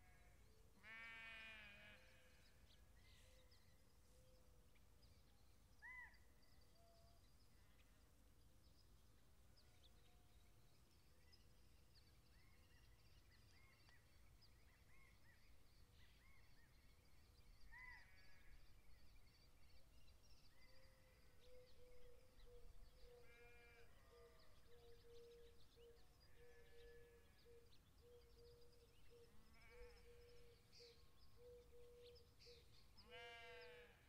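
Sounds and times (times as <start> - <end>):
bird calls and chirps: 9.6 - 33.8.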